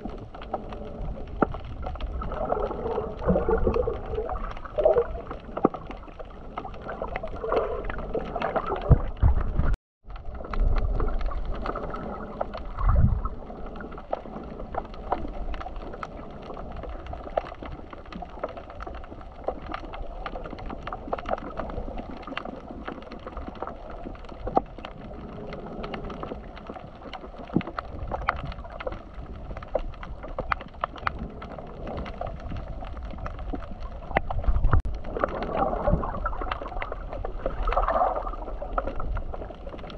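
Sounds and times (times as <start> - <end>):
sea water sloshing and gurgling: 0.0 - 39.9
small clicks and ticks: 0.0 - 39.9.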